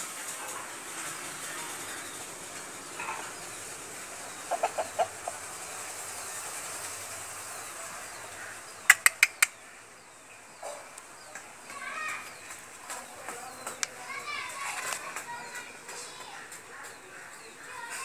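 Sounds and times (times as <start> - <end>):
steady background hiss: 0.0 - 17.6
rooster clucking low: 4.4 - 5.5, 8.9 - 9.6
sharp clicks: 8.9 - 9.5.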